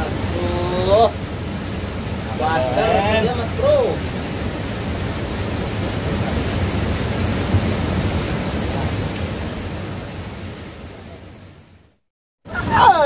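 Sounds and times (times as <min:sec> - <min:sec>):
river water rushing: 0:00.0 - 0:11.8, 0:12.5 - 0:13.0
wind buffeting microphone: 0:03.2 - 0:11.1.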